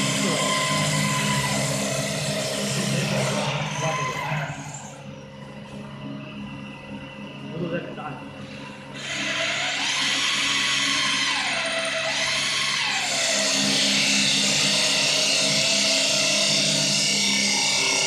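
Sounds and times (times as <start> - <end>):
wood lathe whining: 0.0 - 5.1, 9.0 - 18.0.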